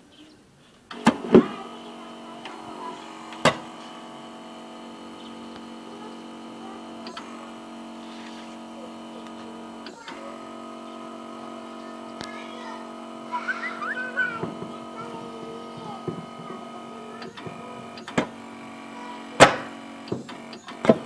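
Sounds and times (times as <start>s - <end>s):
electric starter buzzing: 0.9s - 21.0s.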